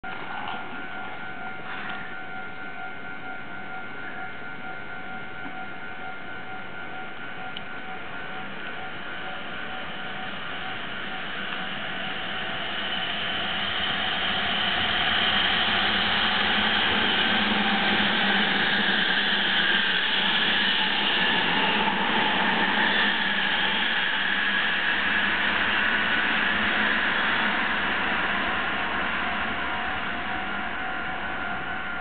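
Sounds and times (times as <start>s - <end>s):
train wheels rushing on rails: 7.8s - 32.0s.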